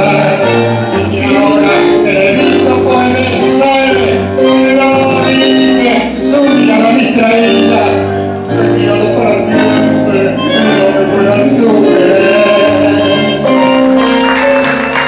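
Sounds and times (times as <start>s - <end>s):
man singing into a microphone: 0.0s - 13.8s
bandoneon chords: 0.0s - 15.0s
keyboard chords: 0.0s - 15.0s.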